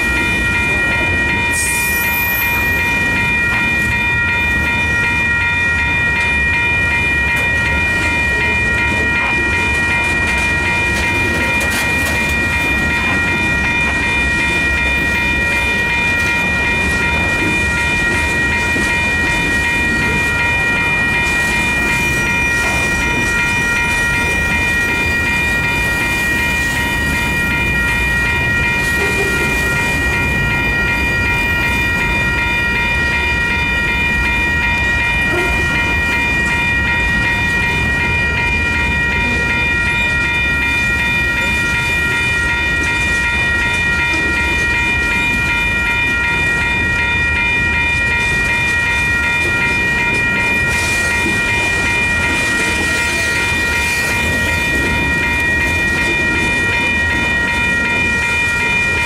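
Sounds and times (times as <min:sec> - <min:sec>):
steady high-pitched tones: 0:00.0 - 0:59.0
train wheels rumbling on rail: 0:00.0 - 0:59.0.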